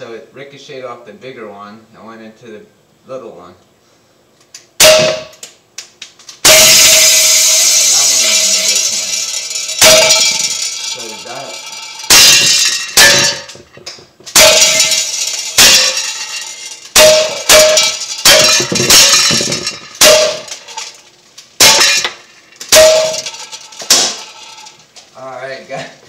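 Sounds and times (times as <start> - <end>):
bbs clanging on tin can: 6.4 - 21.0, 21.6 - 24.8.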